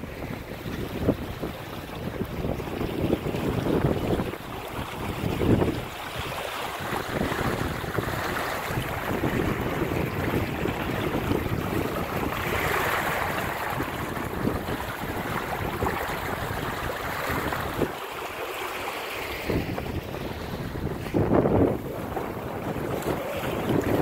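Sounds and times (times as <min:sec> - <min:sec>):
wind buffeting microphone: 0:00.0 - 0:18.0, 0:19.1 - 0:24.0
choppy water slapping hull: 0:00.0 - 0:24.0.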